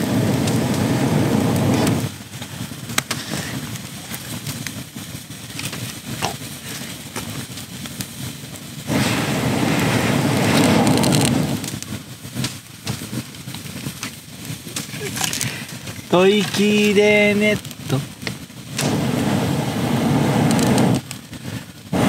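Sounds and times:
breath blown into fire: 0.0s - 4.6s, 8.7s - 12.4s, 14.6s - 16.2s, 17.9s - 22.0s
campfire crackling and popping: 0.0s - 22.0s.

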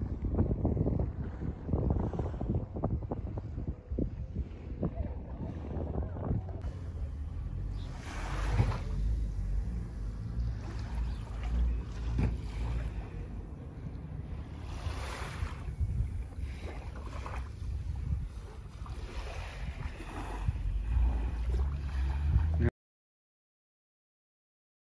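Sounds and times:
wind rumbling on microphone: 0.0s - 22.7s
small waves washing ashore: 6.6s - 22.7s.

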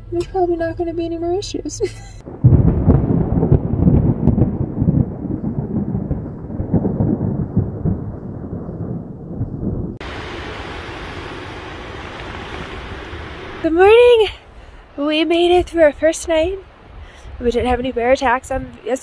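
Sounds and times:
thunder rumbling: 2.2s - 18.8s
steady hiss: 10.0s - 15.0s.

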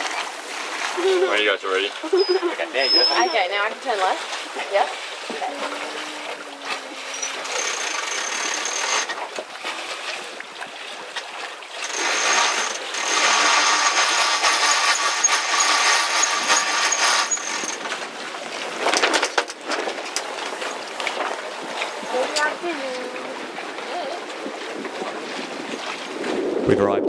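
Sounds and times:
water rushing: 0.0s - 26.9s
wind: 0.0s - 27.0s
winch ratcheting whirr: 5.7s - 9.2s, 11.8s - 18.0s.

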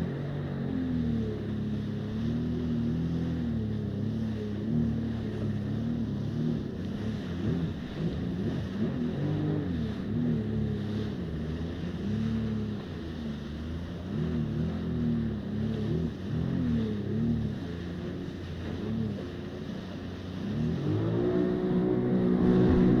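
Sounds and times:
jet ski engine running: 0.0s - 23.0s
rushing water: 0.0s - 23.0s
wind on microphone: 20.5s - 23.0s.

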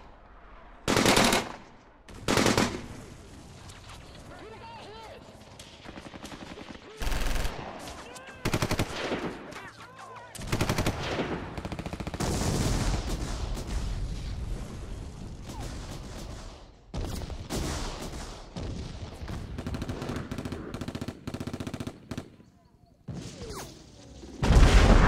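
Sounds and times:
automatic machine gun fire: 10.4s - 13.2s.

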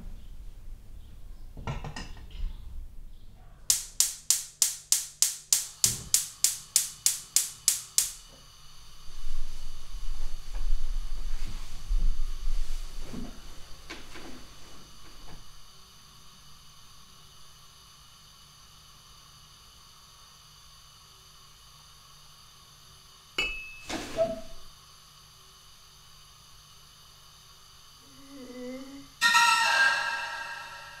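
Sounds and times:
room hiss: 3.7s - 31.0s
loud sudden burst: 29.2s - 31.0s
sharp clink with high ring: 29.2s - 31.0s
short wavering pitched sound: 29.2s - 31.0s.

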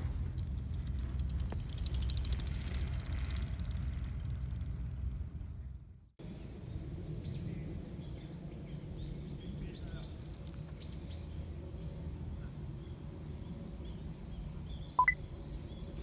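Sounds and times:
small bird chirping: 14.8s - 15.3s.

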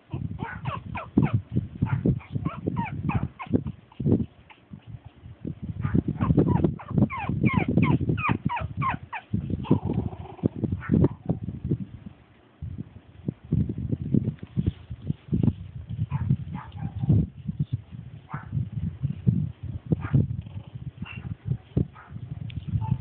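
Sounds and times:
puppies yipping: 0.1s - 5.2s, 5.8s - 10.0s.

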